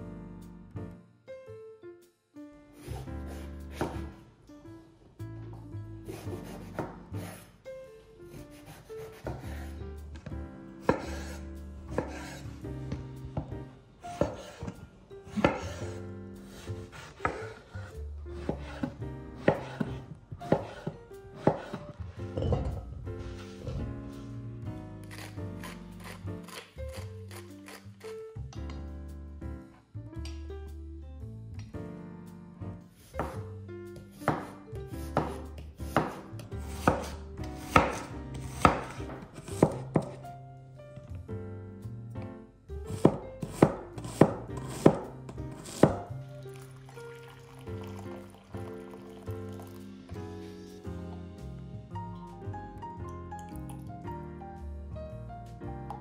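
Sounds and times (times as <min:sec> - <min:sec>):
soft background music: 0:00.0 - 0:56.0
knife chopping on wooden board: 0:02.9 - 0:04.1, 0:08.6 - 0:09.7, 0:10.8 - 0:12.4, 0:14.1 - 0:15.9, 0:16.6 - 0:17.6, 0:18.4 - 0:22.5, 0:33.2 - 0:33.4, 0:34.2 - 0:40.2, 0:42.9 - 0:46.1.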